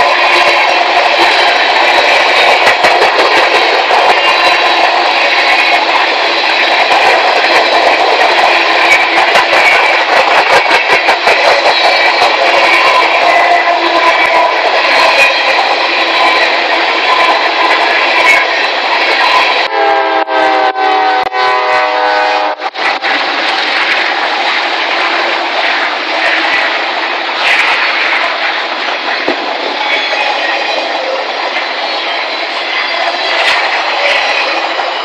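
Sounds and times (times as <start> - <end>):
freight cars rumbling and rattling: 0.0 - 19.7, 22.7 - 35.0
locomotive air horn: 19.7 - 22.7.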